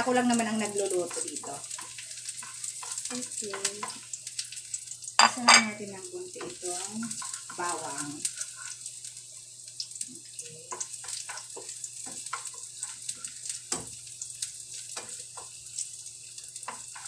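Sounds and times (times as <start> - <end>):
garlic sizzling in frying pan: 0.0 - 17.0
wooden spatula scraping pan: 6.4 - 8.8.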